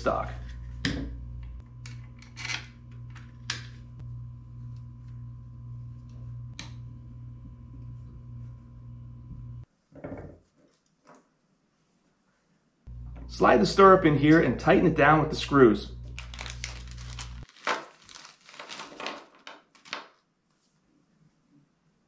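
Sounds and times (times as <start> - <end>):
steady low hum: 0.0 - 9.7, 12.9 - 17.4
handling clatter: 16.0 - 20.0.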